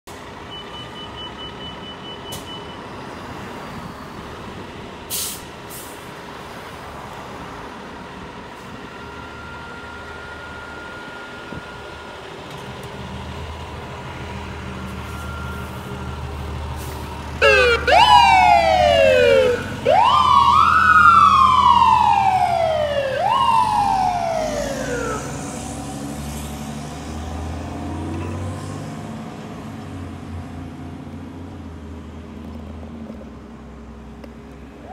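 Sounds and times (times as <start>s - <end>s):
fire engine rumbling: 0.1s - 33.8s
fire engine siren wailing: 8.7s - 12.3s, 15.0s - 28.2s.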